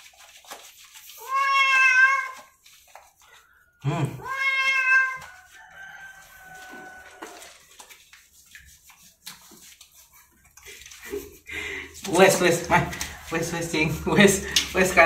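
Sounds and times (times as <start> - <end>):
cat yowling: 1.2 - 2.4, 4.1 - 5.3.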